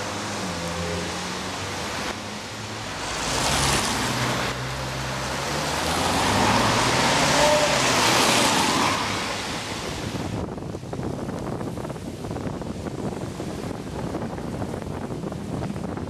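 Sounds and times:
car engine pulling away: 0.0s - 9.7s
tyres hissing on wet road: 0.0s - 10.5s.

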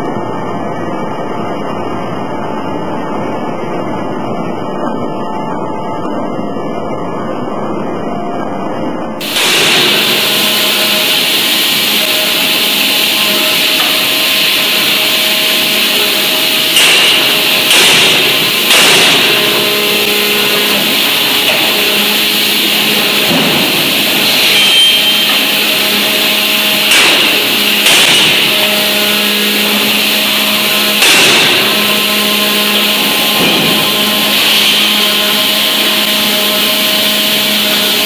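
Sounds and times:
hydraulic power unit humming: 0.0s - 38.0s
heavy forging hammer blows: 9.2s - 38.0s.

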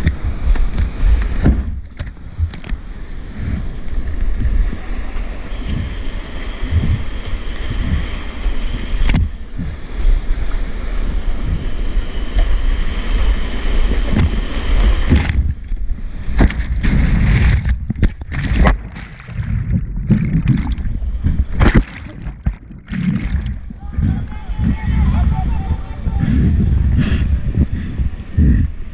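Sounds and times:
water thudding on microphone: 15.0s - 24.9s.

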